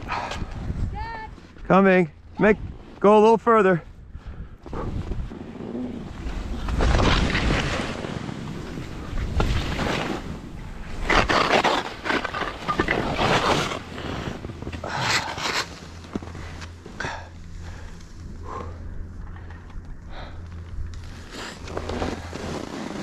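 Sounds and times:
wind rumbling on microphone: 0.0 - 1.6, 3.9 - 11.5
skis scraping through snow: 4.8 - 17.0, 21.0 - 23.0.

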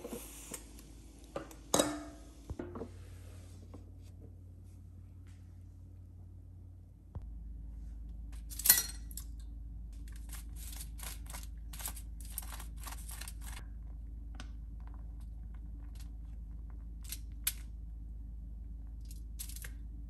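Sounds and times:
sharp ringing clink: 8.6 - 9.2.

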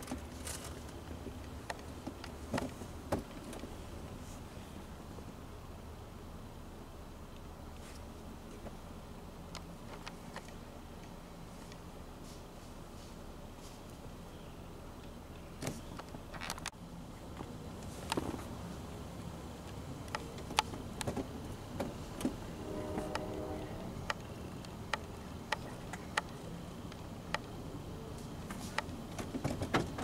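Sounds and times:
distant road traffic rumble: 0.0 - 30.0.

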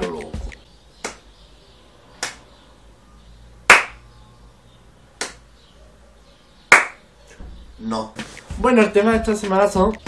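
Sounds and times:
person clapping hands slowly: 2.2 - 2.4, 3.7 - 4.0, 5.2 - 5.4, 6.7 - 7.0.

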